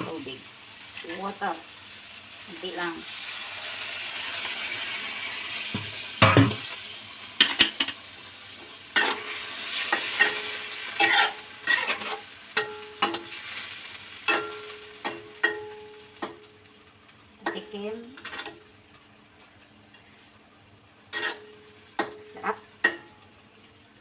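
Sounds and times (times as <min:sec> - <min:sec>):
food sizzling in a wok: 0:00.0 - 0:24.0
metal turner knocking and scraping pan: 0:05.8 - 0:06.6, 0:09.0 - 0:09.3, 0:09.9 - 0:13.4, 0:21.1 - 0:22.2.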